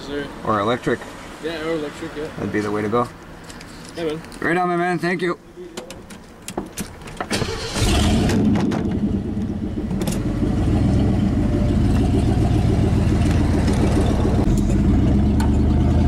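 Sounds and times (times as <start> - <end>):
pickup truck engine running: 7.5 - 16.0.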